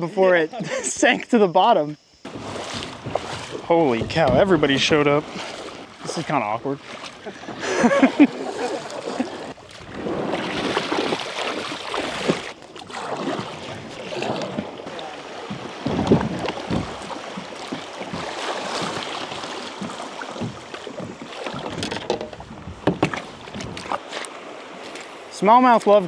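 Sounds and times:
water splashing around kayak: 2.2s - 26.0s
knocks and rustles: 2.4s - 5.0s, 15.4s - 19.0s, 19.6s - 24.0s.

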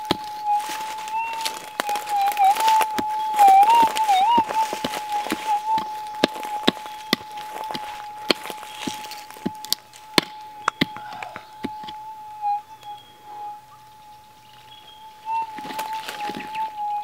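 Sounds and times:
hand pick striking gravelly soil: 0.0s - 11.9s
metal detector high-pitched tone: 0.0s - 17.0s.

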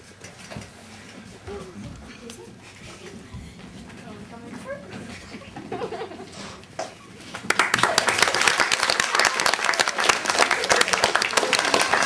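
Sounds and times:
audience applauding: 7.2s - 12.0s.

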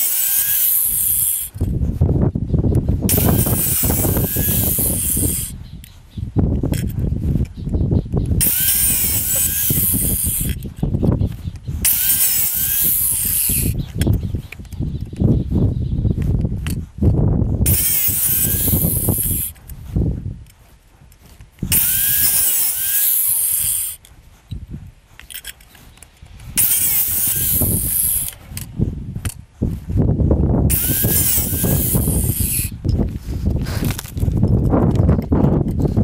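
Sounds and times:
angle grinder cutting metal: 0.0s - 1.6s, 3.1s - 5.6s, 8.4s - 10.7s, 11.8s - 14.1s, 17.6s - 19.6s, 21.6s - 24.1s, 25.2s - 28.7s, 30.7s - 32.8s.

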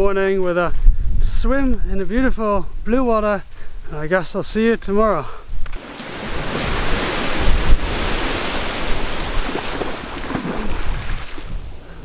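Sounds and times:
wind buffeting microphone: 0.0s - 3.9s, 5.5s - 12.0s
waves washing on beach: 5.7s - 11.9s.

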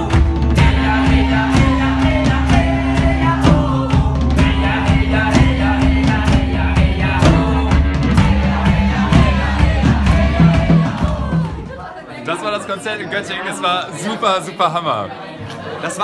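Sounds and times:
rock band playing live: 0.0s - 11.7s
drum hits: 0.0s - 11.8s.

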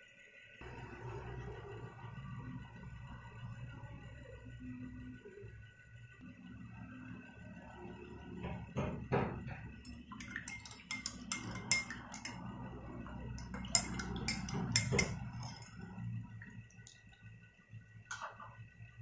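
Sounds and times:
spoon clinking against glass: 9.8s - 15.9s.

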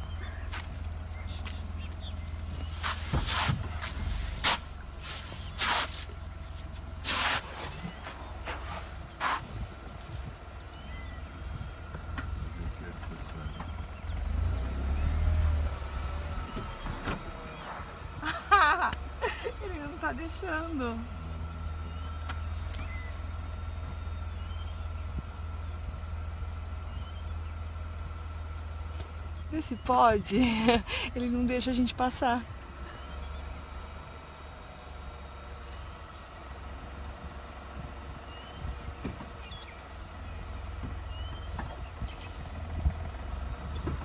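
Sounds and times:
car engine idling: 0.0s - 44.0s.

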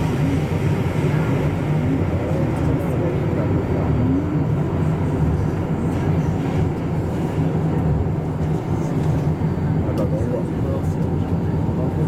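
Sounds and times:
metro train running rumble: 0.0s - 12.0s.

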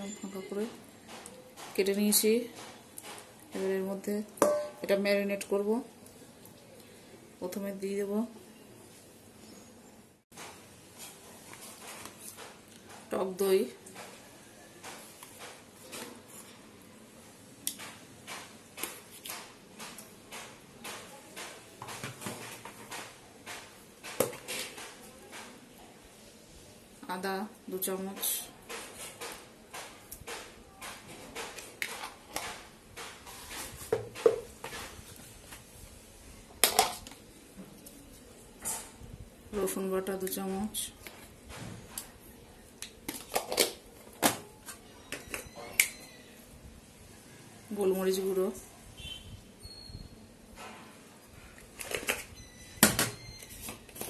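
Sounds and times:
spoon tapping in a steel bowl: 4.4s - 4.8s.

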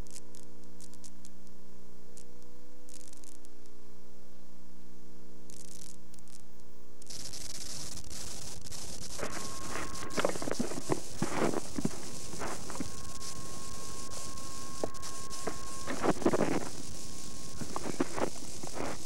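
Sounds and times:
faint crackles: 0.0s - 3.9s, 5.4s - 19.0s
steady electrical hum: 0.0s - 19.0s
tape hiss: 0.0s - 19.0s.

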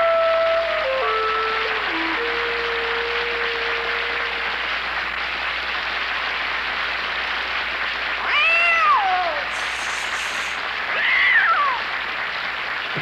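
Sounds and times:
steady hiss: 0.0s - 13.0s
cat meowing: 8.2s - 9.5s, 10.9s - 11.8s.

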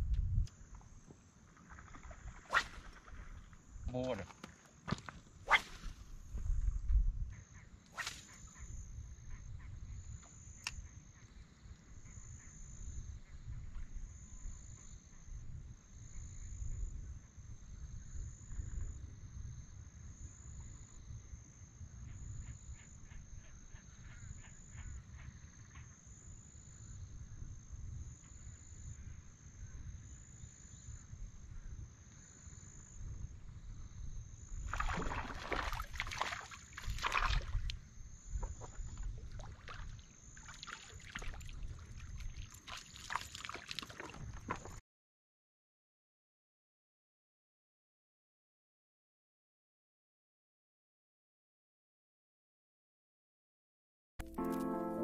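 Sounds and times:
wind buffeting microphone: 0.0s - 0.5s, 5.8s - 7.4s.

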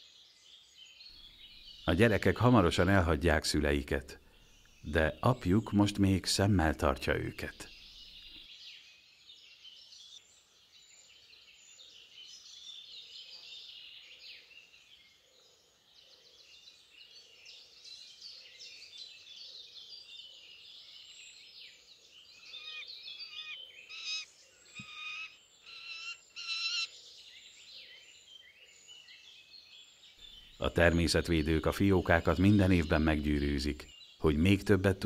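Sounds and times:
birdsong chirps and trills: 0.0s - 35.0s
harsh bird calls: 1.1s - 8.7s, 22.1s - 29.4s, 30.1s - 35.0s.

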